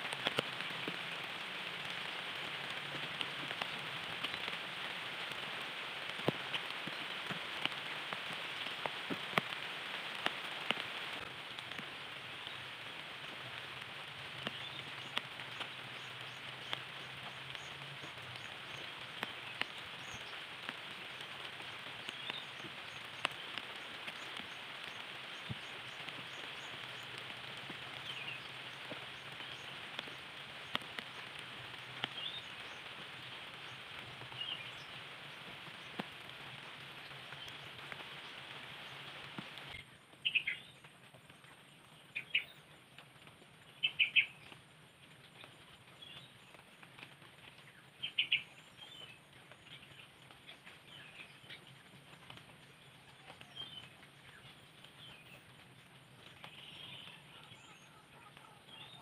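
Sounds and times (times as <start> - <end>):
light rain on foliage: 0.0 - 59.0
faint bird chirps: 47.7 - 59.0.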